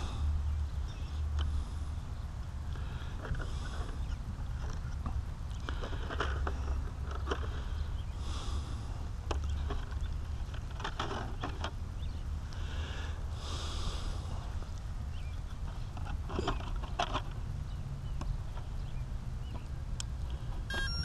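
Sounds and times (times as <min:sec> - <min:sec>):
hissy breaths: 0:00.0 - 0:04.4, 0:05.6 - 0:09.8, 0:12.4 - 0:14.9
wind rumble on microphone: 0:00.0 - 0:20.9.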